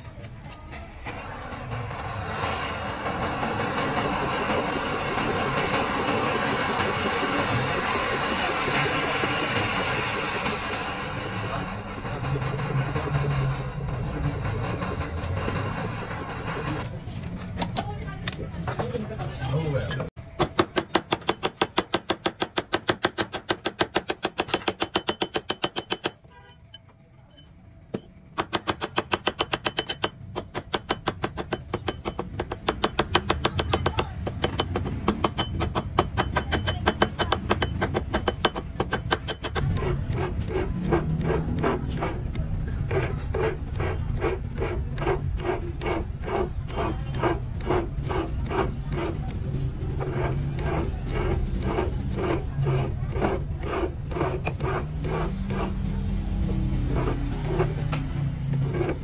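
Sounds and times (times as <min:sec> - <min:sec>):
hand tools striking metal: 0:19.5 - 0:49.4.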